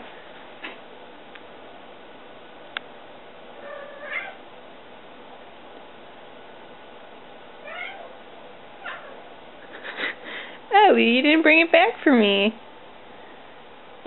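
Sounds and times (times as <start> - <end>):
cat meowing: 3.6 - 4.4, 7.6 - 8.2, 8.8 - 9.2.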